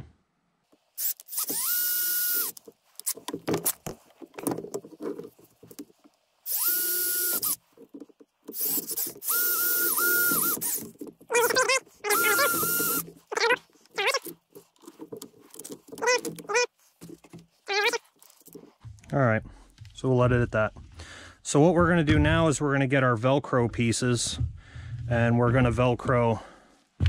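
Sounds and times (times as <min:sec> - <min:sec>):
cordless drill motor whine: 0:01.0 - 0:02.6, 0:06.5 - 0:07.6, 0:08.5 - 0:13.1
squeaky chirps: 0:08.5 - 0:14.3, 0:16.0 - 0:16.7, 0:17.6 - 0:18.1.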